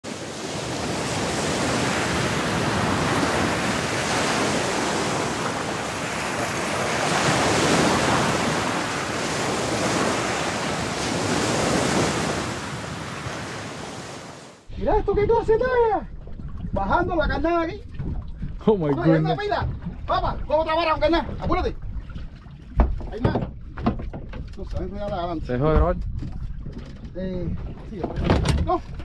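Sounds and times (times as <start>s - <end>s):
ocean waves washing: 0.0s - 14.7s.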